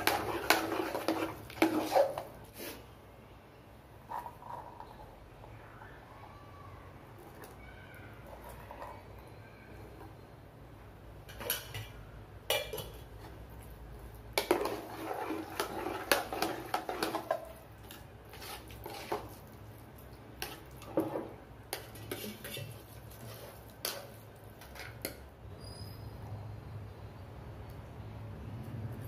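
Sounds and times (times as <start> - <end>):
spoon scraping metal pot: 0.0 - 2.8, 11.3 - 13.4, 14.3 - 19.6, 20.4 - 25.3.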